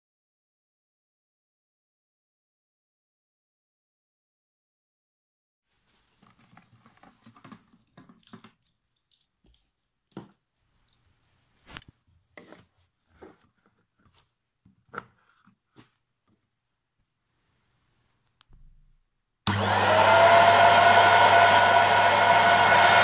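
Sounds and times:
rustling scrapes: 5.7 - 8.2, 10.7 - 14.2
clicks and taps of handling: 6.2 - 16.5.

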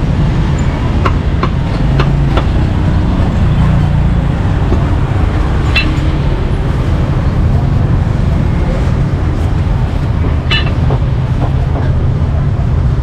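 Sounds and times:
street traffic rumble: 0.0 - 13.0
sharp knocks: 1.0 - 2.6, 10.2 - 12.0.

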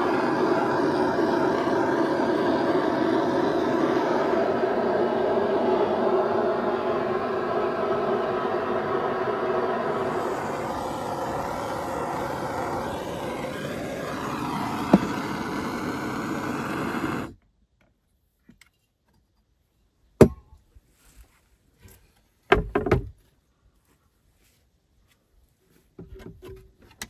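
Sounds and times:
gas torch flame blowing: 0.0 - 17.4.

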